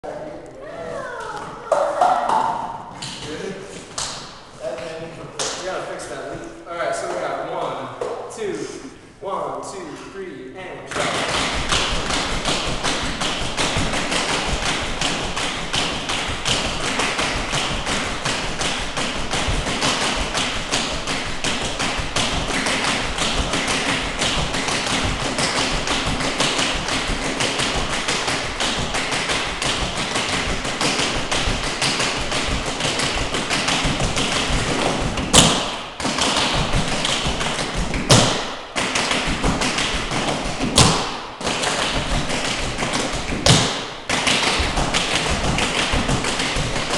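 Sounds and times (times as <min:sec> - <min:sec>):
tap shoes striking floor: 0:10.9 - 0:46.9.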